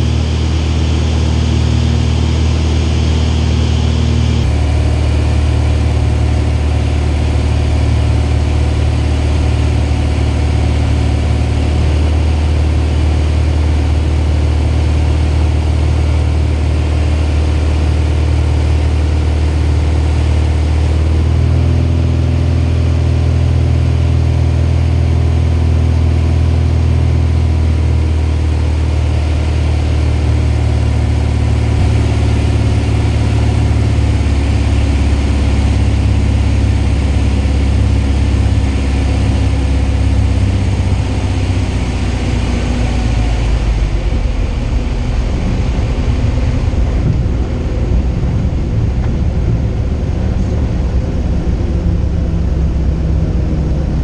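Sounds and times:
light aircraft engine and propeller: 0.0s - 54.0s.

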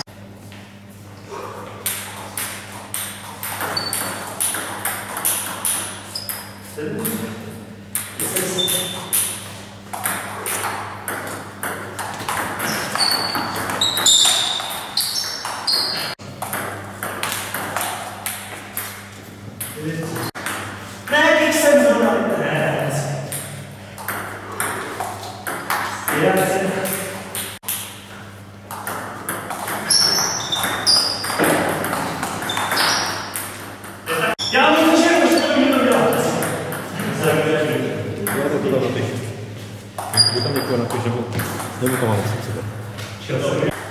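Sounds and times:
shoes squeaking: 0.0s - 4.6s, 5.2s - 7.3s, 8.4s - 9.8s, 12.0s - 16.2s, 29.2s - 36.3s, 39.6s - 41.6s.

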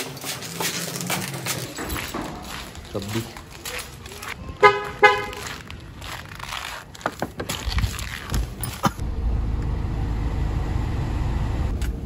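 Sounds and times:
car engine low rumble: 7.6s - 12.0s.

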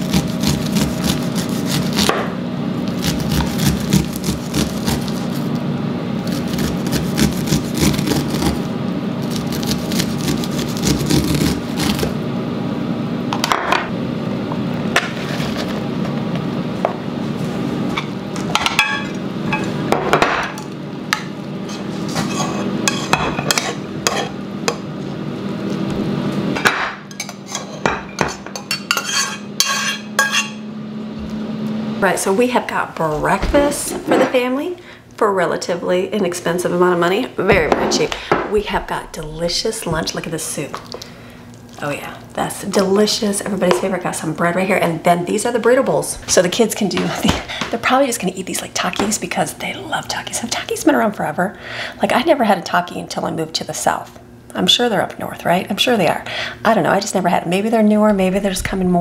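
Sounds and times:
knife scraping corn on board: 0.0s - 2.2s, 2.9s - 5.5s, 6.2s - 12.1s, 21.6s - 24.3s
dishes and pan clinking: 21.7s - 24.3s, 26.6s - 30.6s.

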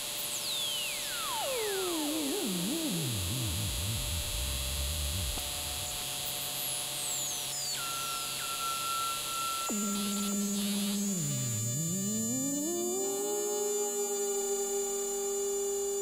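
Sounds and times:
synthesizer tone gliding down: 1.0s - 6.3s, 9.7s - 16.0s
held synthesizer tones: 1.1s - 6.2s, 9.7s - 14.9s.

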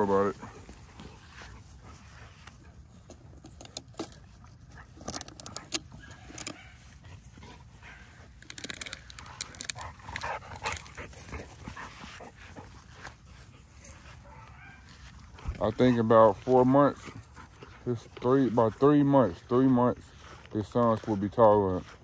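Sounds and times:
dogs whimpering and yipping: 5.8s - 7.0s.

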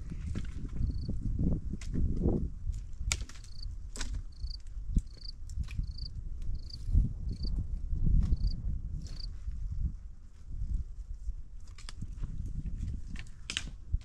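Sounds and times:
insect chirping: 0.8s - 1.1s, 3.4s - 3.7s, 4.3s - 7.5s, 8.3s - 9.3s
twigs or stones clicking: 3.1s - 7.5s, 8.3s - 9.3s
footsteps on dry stony ground: 3.4s - 7.5s, 8.2s - 9.3s.

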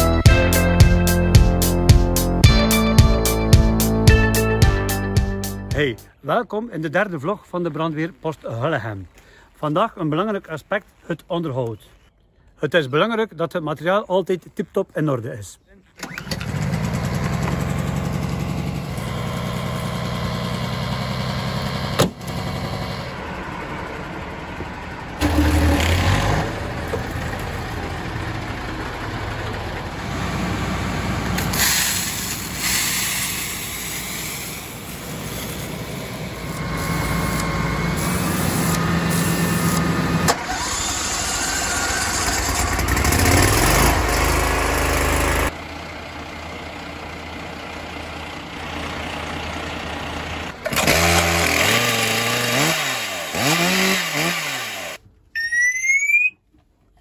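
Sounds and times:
small petrol engines running: 16.0s - 55.0s.

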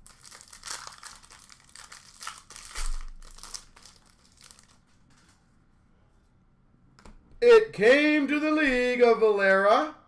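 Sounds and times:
plastic wrapper crinkling: 0.0s - 5.3s.

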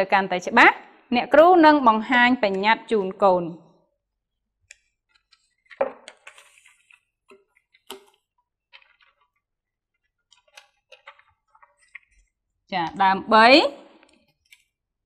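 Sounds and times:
paper rustling: 5.1s - 9.4s.

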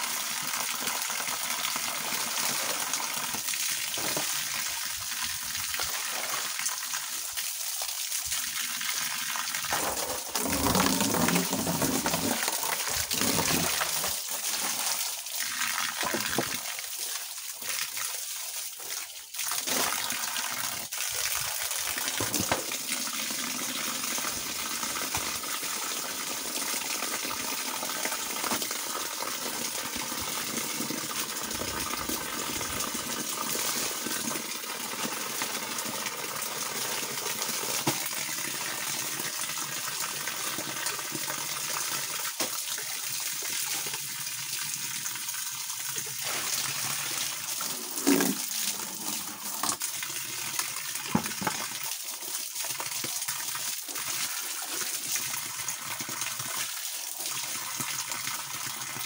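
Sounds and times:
water jetting from hose: 1.3s - 25.4s, 45.9s - 50.4s
water splashing: 9.6s - 16.7s.

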